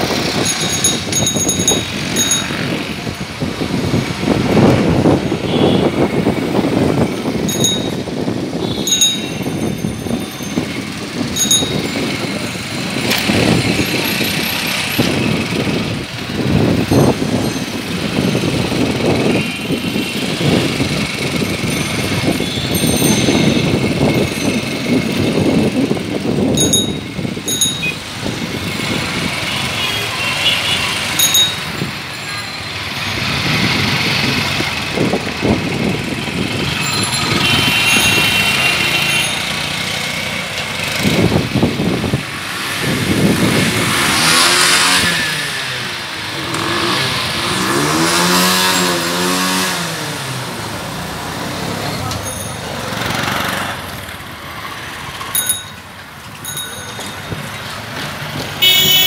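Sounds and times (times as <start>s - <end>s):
motorbikes accelerating: 0.0s - 30.1s, 32.8s - 55.7s
auto-rickshaw engines: 0.0s - 59.0s
short horn beeps: 58.6s - 59.0s.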